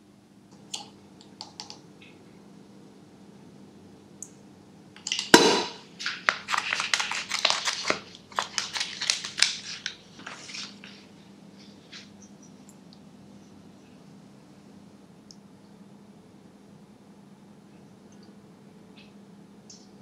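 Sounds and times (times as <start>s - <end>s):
low steady hum: 0.0s - 20.0s
hard objects cracking and crunching: 5.0s - 10.0s
loud sharp knock: 5.4s - 5.8s.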